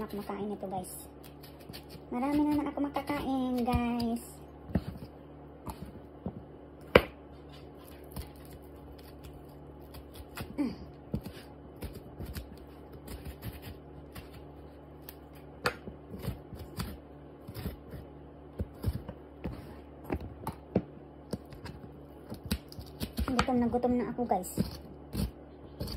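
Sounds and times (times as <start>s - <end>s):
knife scraping melon: 1.2s - 6.0s, 7.3s - 15.5s, 16.1s - 19.9s, 24.4s - 25.9s.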